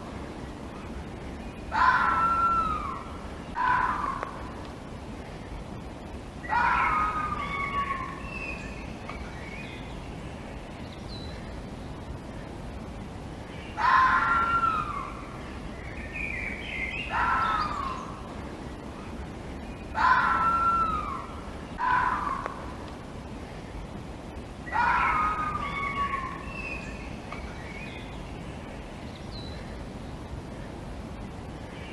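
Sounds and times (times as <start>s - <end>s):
background hiss: 0.0s - 31.9s
fox screaming: 1.7s - 4.5s, 6.4s - 8.3s, 13.8s - 15.2s, 17.1s - 18.1s, 20.0s - 22.7s, 24.7s - 26.6s.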